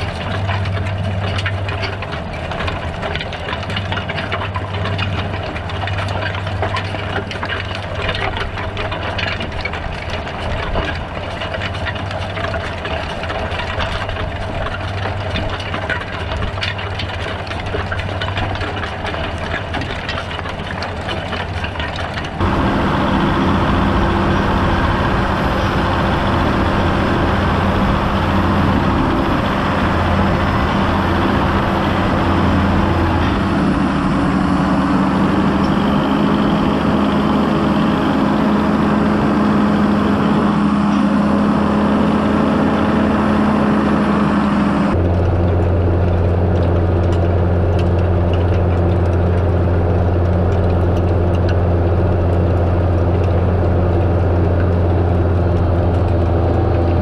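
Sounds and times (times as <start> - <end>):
tractor diesel engine under load: 0.0 - 57.0
engine hiss: 22.4 - 36.2.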